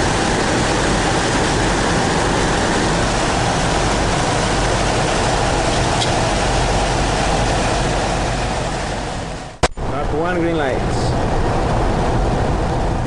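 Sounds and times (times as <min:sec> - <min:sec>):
rain against windshield: 0:00.0 - 0:09.4
slipstream rushing: 0:00.0 - 0:13.0.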